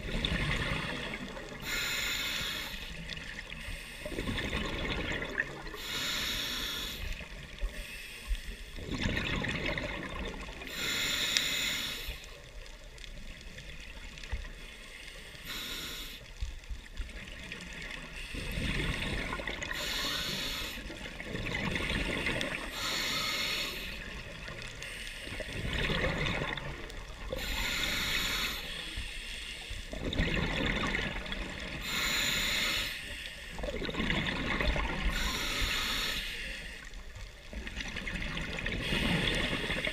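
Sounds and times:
exhaled bubbles rushing: 0:00.0 - 0:01.6, 0:04.1 - 0:05.8, 0:08.8 - 0:10.7, 0:18.4 - 0:19.8, 0:21.1 - 0:22.7, 0:25.4 - 0:27.4, 0:29.9 - 0:31.8, 0:33.6 - 0:35.1, 0:37.5 - 0:39.9
regulator hiss on inhale: 0:01.6 - 0:04.3, 0:05.7 - 0:08.8, 0:10.6 - 0:12.5, 0:14.4 - 0:16.7, 0:18.0 - 0:21.2, 0:22.3 - 0:25.6, 0:27.2 - 0:30.0, 0:31.6 - 0:33.6, 0:35.0 - 0:37.3, 0:38.7 - 0:39.9.

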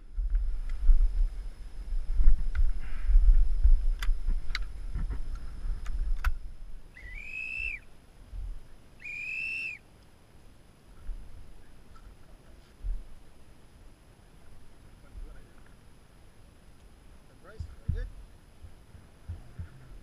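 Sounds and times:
whistle blasts: 0:06.9 - 0:07.8, 0:09.0 - 0:09.8.

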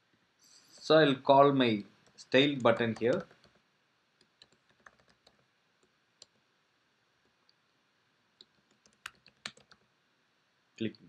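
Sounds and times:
keyboard keystrokes: 0:02.6 - 0:03.6, 0:04.3 - 0:05.4, 0:08.7 - 0:09.8.

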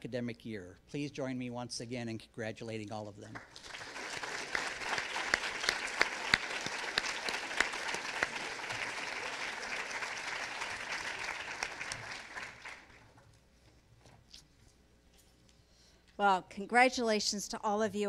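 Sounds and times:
audience applauding: 0:03.4 - 0:13.2.

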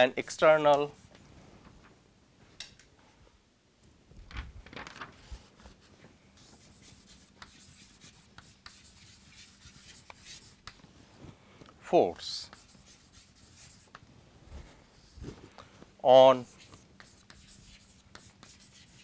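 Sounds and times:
chalk scratching on blackboard: 0:00.8 - 0:01.1, 0:06.4 - 0:10.8, 0:12.3 - 0:14.0, 0:16.4 - 0:19.0.

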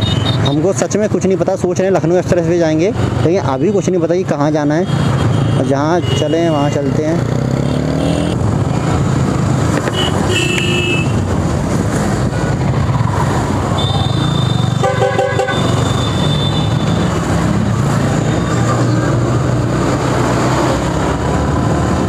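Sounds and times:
road and wind noise: 0:00.0 - 0:22.0
motorcycle running: 0:04.3 - 0:22.0
vehicle horn honking: 0:09.9 - 0:11.2, 0:13.8 - 0:16.8.

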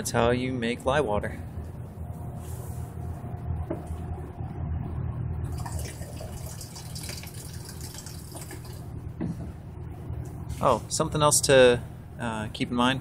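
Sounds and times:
low background rumble: 0:00.0 - 0:13.0
water trickling into a jug: 0:05.5 - 0:08.9.

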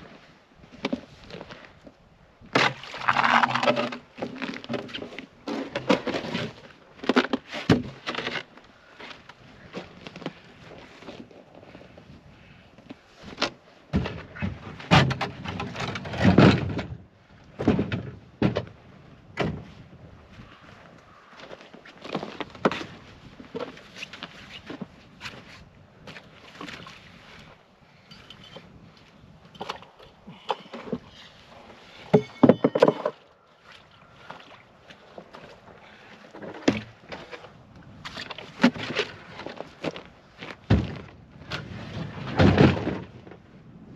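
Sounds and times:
wooden knocks and scrapes: 0:30.6 - 0:33.2
plywood knocks and scrapes: 0:32.1 - 0:33.2.

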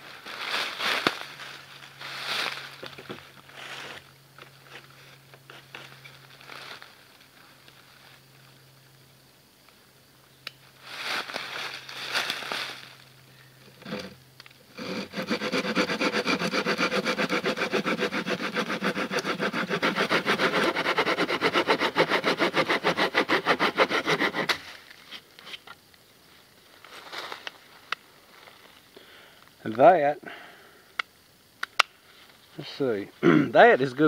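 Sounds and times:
hand saw cutting wood: 0:13.8 - 0:24.6.

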